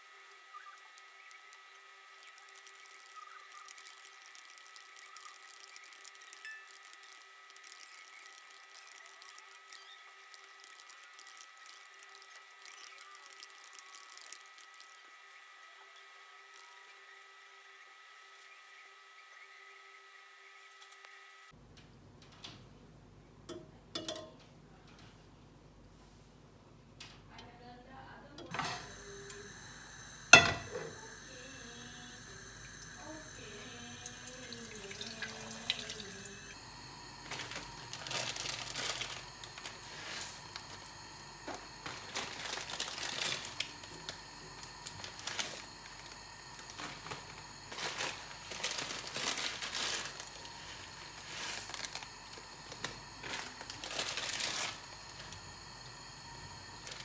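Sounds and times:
water running and splashing: 0:00.1 - 0:15.1, 0:31.4 - 0:55.4.

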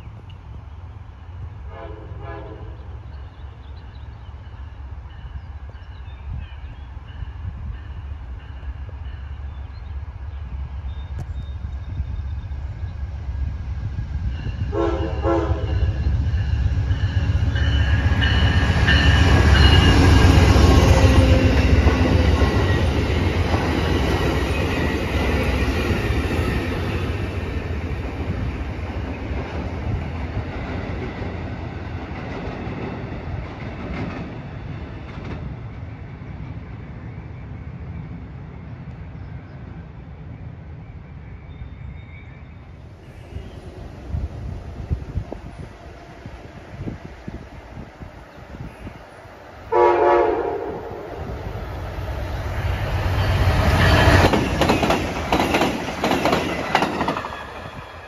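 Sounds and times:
train rumbling on rails: 0:00.0 - 0:58.0
train horn: 0:01.7 - 0:02.9, 0:14.6 - 0:16.1, 0:49.7 - 0:51.3.

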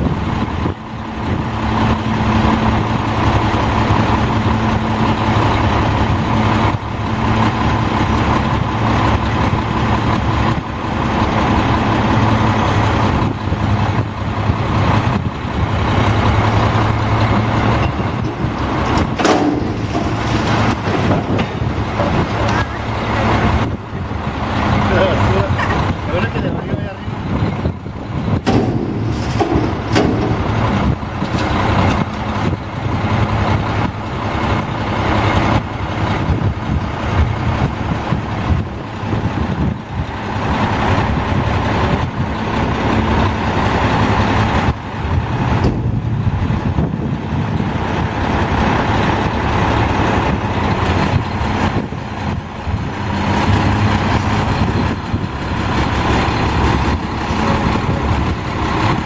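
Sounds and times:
truck diesel engine running: 0:00.0 - 0:59.0
metal clanks and knocks: 0:17.2 - 0:23.4, 0:28.4 - 0:32.2.

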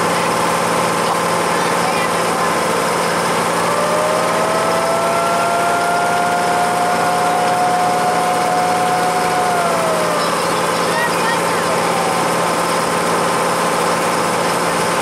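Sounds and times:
motorboat engine running: 0:00.0 - 0:15.0
held gliding tone: 0:03.1 - 0:12.7.

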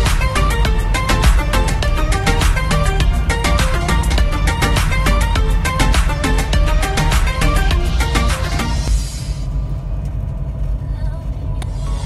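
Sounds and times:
fast beat music with heavy bass: 0:00.0 - 0:09.1.

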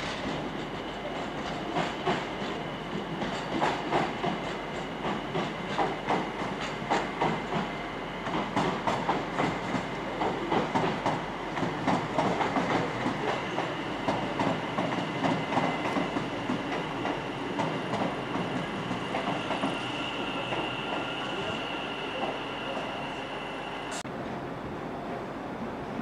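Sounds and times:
train wheels clicking over rail joints: 0:00.0 - 0:21.1
train running rumble: 0:00.0 - 0:23.0
high steady squeal: 0:18.1 - 0:24.0.

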